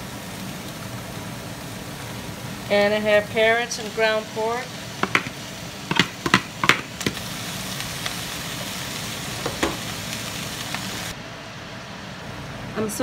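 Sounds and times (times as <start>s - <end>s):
food sizzling in a skillet: 0.0s - 11.2s
utensils clacking against pan: 5.0s - 7.0s.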